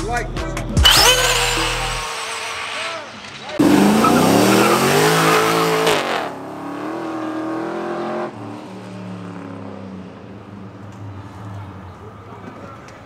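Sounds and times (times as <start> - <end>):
car engine revving: 0.8 - 10.7.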